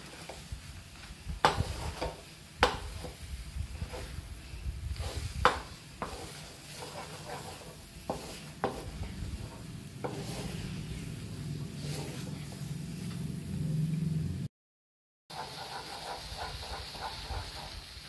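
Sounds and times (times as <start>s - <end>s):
spatula scraping in pan: 0.0s - 13.6s, 15.3s - 18.0s
faint sizzle: 0.0s - 14.5s, 15.3s - 18.0s
spatula knocking against pan: 8.1s - 8.9s.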